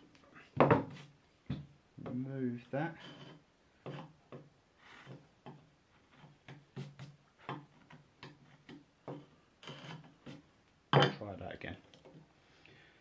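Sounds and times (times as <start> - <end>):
chisel scraping wood: 2.9 - 4.2, 8.6 - 10.4.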